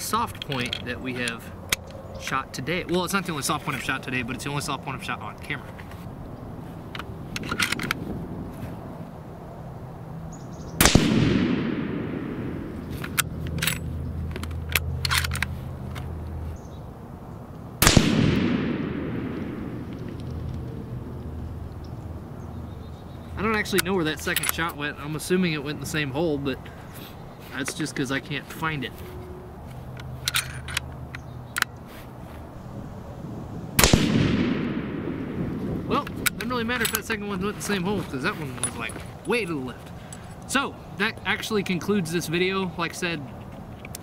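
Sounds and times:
rifle shot: 10.8 - 12.9, 17.8 - 20.2, 33.8 - 35.8.

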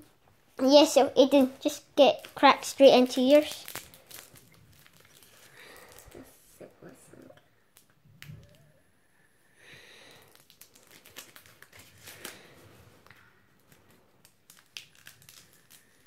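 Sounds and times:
wrapper crinkling and tearing: 2.2 - 6.3, 10.1 - 12.7, 13.6 - 16.0.

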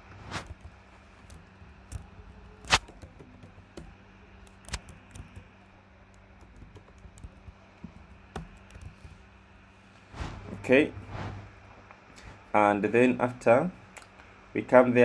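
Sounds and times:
faint low hum: 0.0 - 15.0
keyboard typing clicks: 1.9 - 5.5.

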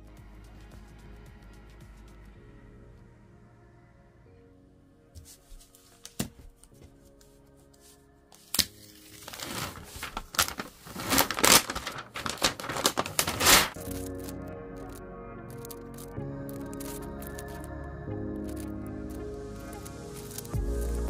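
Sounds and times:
background music: 0.0 - 21.0
plastic film peeling and crinkling: 8.4 - 17.7, 18.4 - 20.6.

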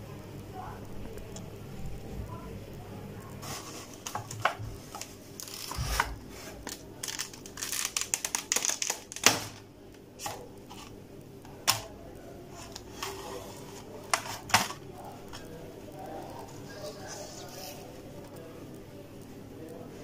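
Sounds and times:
plastic blister pack crinkling: 3.4 - 18.4
plastic snapping: 4.0 - 10.9, 11.5 - 11.9, 14.1 - 15.5.

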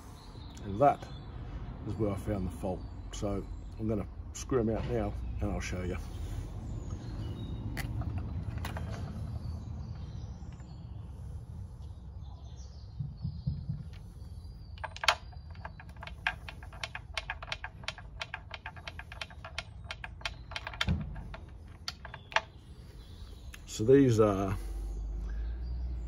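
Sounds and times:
ratchet wrench clicking: 14.8 - 22.5.

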